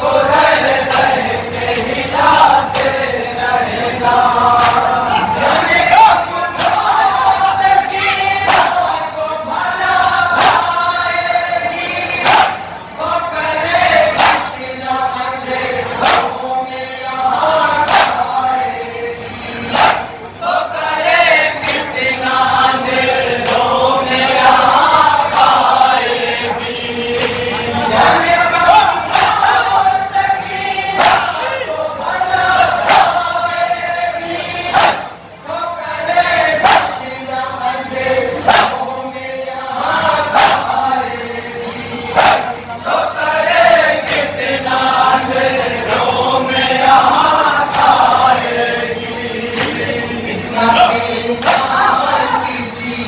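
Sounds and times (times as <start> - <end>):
men chanting in chorus: 0.0 - 53.0
chest-beating slaps: 16.0 - 16.4.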